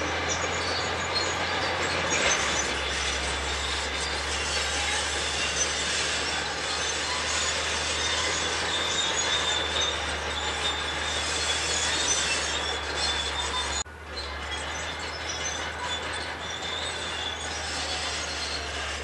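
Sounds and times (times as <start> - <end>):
diesel engine running: 0.0 - 19.0
steel tracks squealing and clanking: 0.0 - 19.0.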